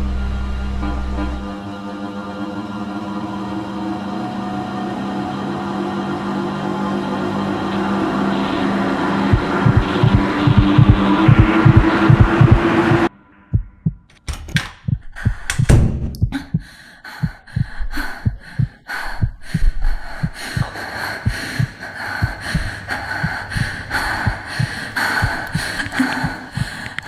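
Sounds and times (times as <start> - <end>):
heartbeat thumps: 9.3 - 14.1, 14.8 - 27.0
sharp clicks: 14.1 - 16.3.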